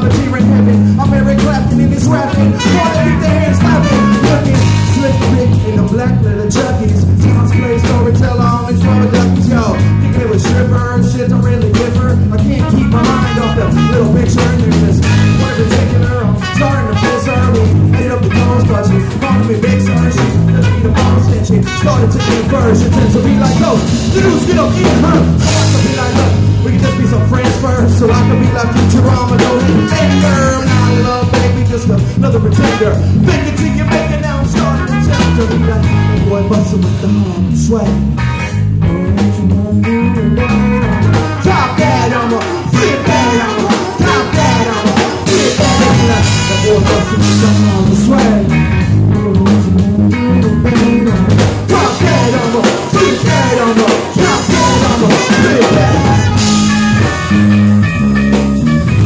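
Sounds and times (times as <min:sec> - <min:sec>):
band playing upbeat ska groove: 0:00.0 - 0:59.0
trumpet: 0:02.0 - 0:05.5, 0:12.6 - 0:31.8, 0:32.4 - 0:36.6, 0:40.4 - 0:48.4, 0:51.7 - 0:59.0.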